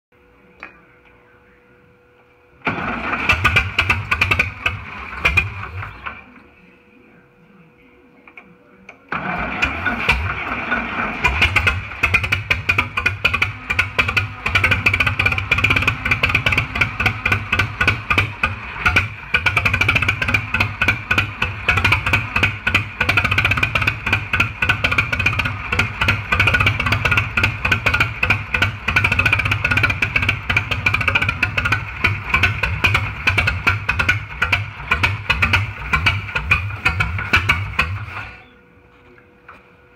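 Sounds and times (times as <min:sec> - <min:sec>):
diesel engine clattering: 0:02.6 - 0:06.2, 0:09.1 - 0:38.5
engine cranking: 0:02.6 - 0:06.3, 0:09.1 - 0:38.6.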